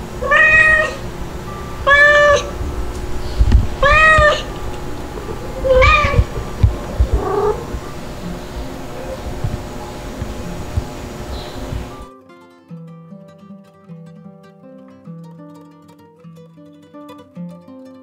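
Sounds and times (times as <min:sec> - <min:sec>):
kitten meowing: 0:00.2 - 0:01.0, 0:01.8 - 0:02.6, 0:03.2 - 0:07.7.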